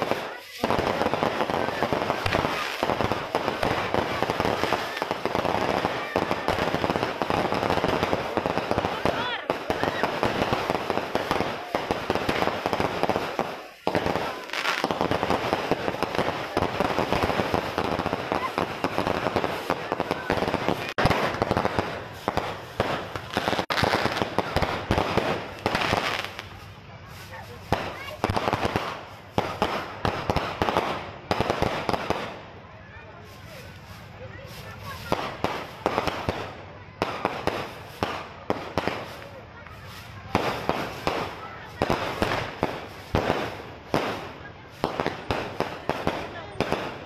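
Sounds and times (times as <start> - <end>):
fireworks cracking and popping: 0.0 - 47.0.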